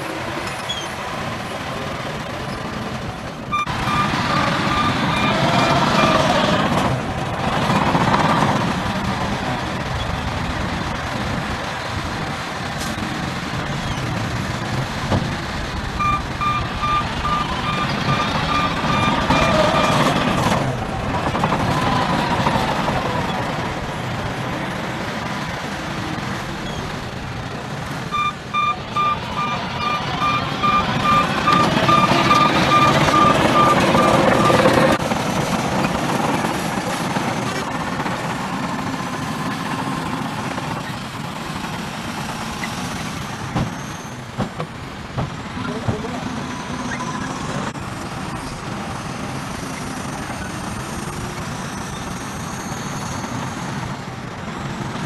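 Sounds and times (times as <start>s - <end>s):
diesel truck engines under load: 0.0s - 55.0s
truck warning alarm beeping: 3.5s - 6.7s, 15.9s - 20.5s, 27.8s - 35.0s, 45.6s - 47.7s.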